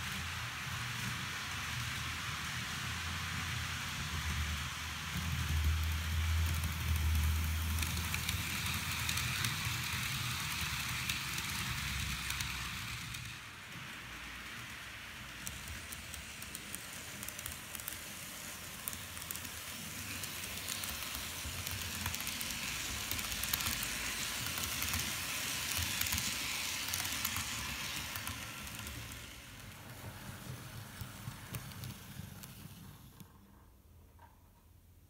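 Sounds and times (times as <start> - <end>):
model train wheels rattling on rails: 0.0 - 33.6.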